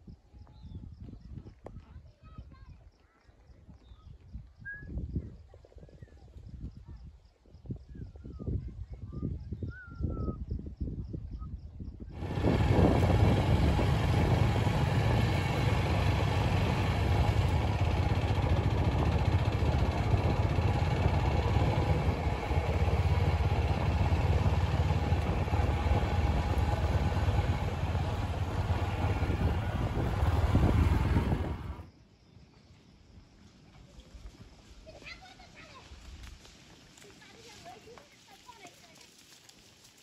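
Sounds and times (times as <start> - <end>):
engine running: 12.1 - 31.8.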